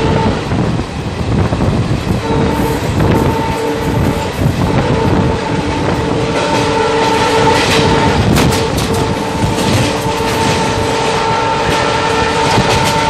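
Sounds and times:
steady whine: 0.0 - 13.0
train rumbling at speed: 0.0 - 13.0
wheels clattering over rail joints: 5.6 - 13.0.

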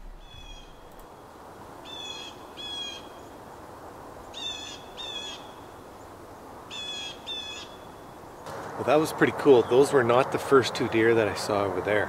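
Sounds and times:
bird calling: 0.0 - 1.2, 1.8 - 3.4, 4.2 - 5.8, 6.7 - 8.5
background hiss: 0.0 - 12.0.

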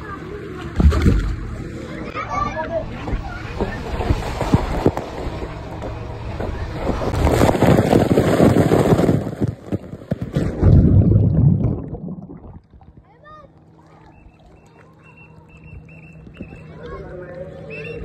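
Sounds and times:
water and air rushing over microphone: 0.0 - 17.7
water churning: 0.0 - 17.7
underwater bubbling: 9.6 - 15.0.

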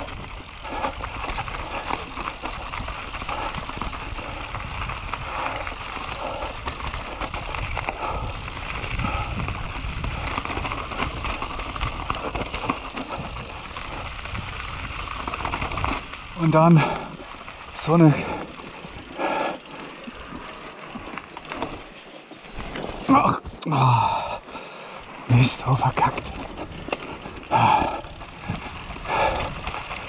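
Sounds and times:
bike clicks and rattles: 0.0 - 30.0
bike tyres on dirt: 0.0 - 30.0.

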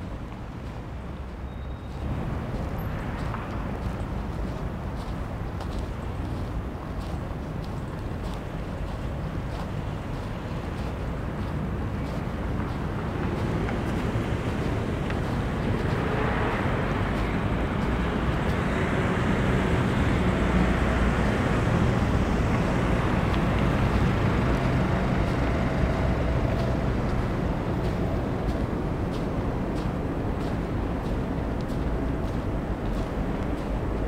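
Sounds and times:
vehicle rumbling past: 10.7 - 34.0.

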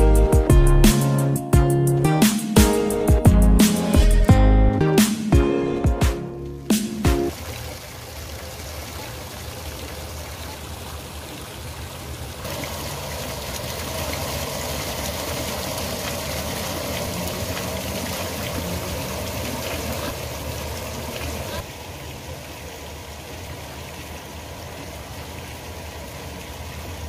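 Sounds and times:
waterfall splashing into pool: 6.4 - 27.0.

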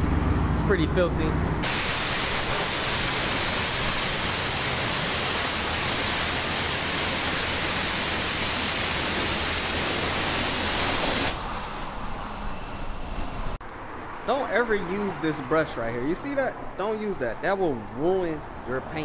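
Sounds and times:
pressure washer spraying water: 1.6 - 13.6.

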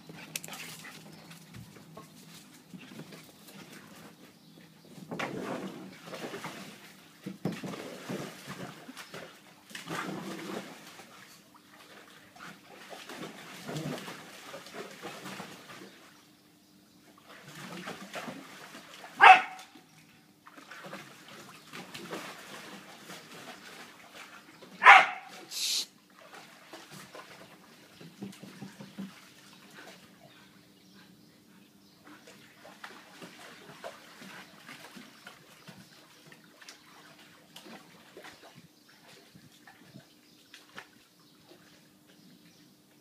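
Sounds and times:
dog barking: 19.2 - 19.7, 24.8 - 25.4.

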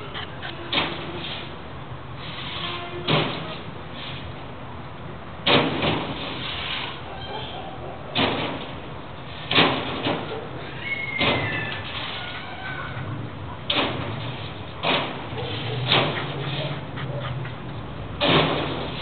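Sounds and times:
dog barking: 7.1 - 8.1, 10.2 - 10.6, 15.3 - 17.6.

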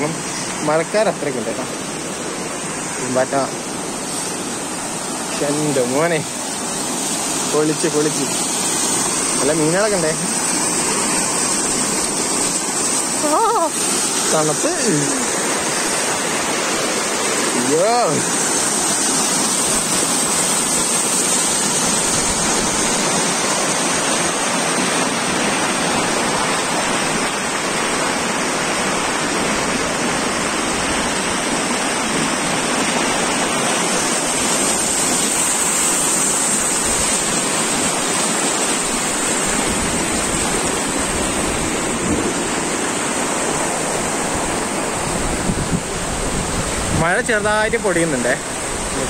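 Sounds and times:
water rushing over rocks: 0.0 - 49.0.

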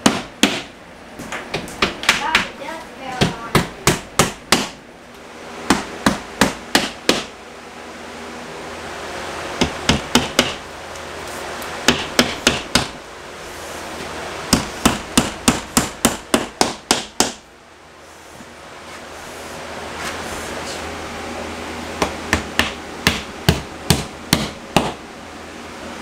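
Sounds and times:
hammer driving nails: 5.7 - 7.3, 14.5 - 17.4.

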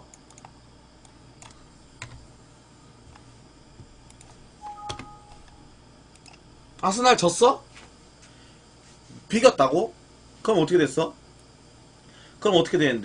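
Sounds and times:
two-note electronic beep: 4.6 - 5.7.

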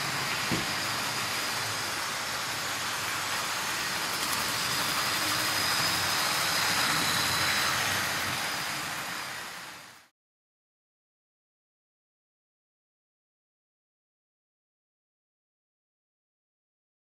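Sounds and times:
wheels rolling on rails: 0.0 - 10.0
model train motors whirring: 0.0 - 10.1.

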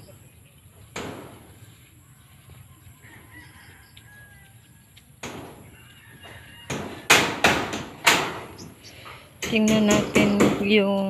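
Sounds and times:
hammer striking metal roofing: 0.9 - 1.5, 5.2 - 5.6, 6.6 - 8.6, 9.4 - 10.9.

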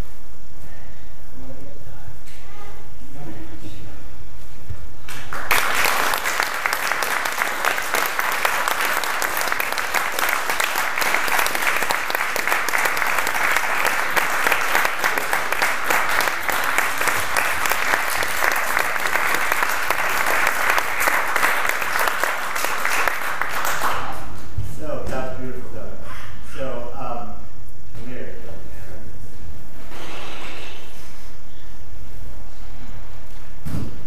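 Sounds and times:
audience applauding: 5.1 - 24.3.

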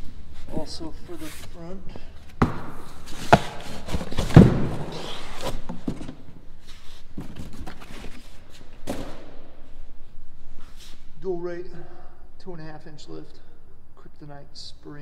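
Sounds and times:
rustling and scraping: 0.1 - 9.0.

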